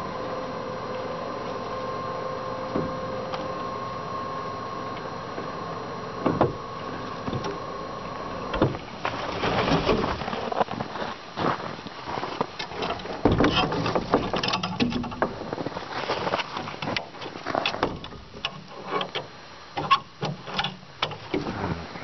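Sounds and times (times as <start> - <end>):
electric winch humming: 0.0 - 10.8
metal clanks and rattles: 12.6 - 15.5, 16.4 - 21.5.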